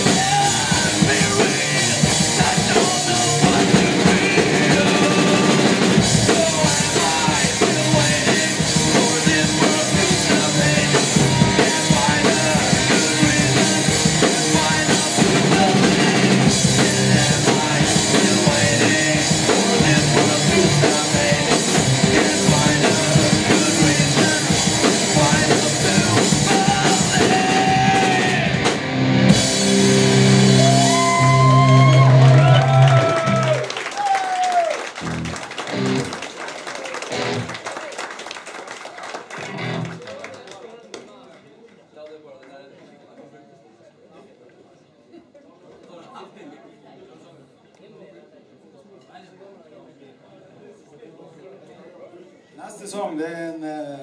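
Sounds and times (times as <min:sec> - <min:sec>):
punk rock band playing: 0:00.0 - 0:33.7, 0:34.9 - 0:36.3, 0:37.0 - 0:37.6, 0:39.3 - 0:40.0.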